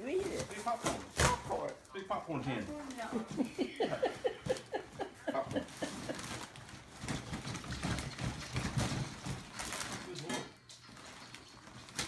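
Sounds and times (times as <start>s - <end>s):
cardboard rustling and scraping: 5.8s - 12.0s.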